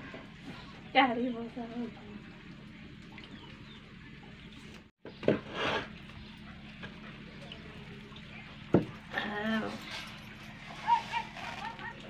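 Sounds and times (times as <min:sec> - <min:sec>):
scraping rustle: 0:09.6 - 0:11.9.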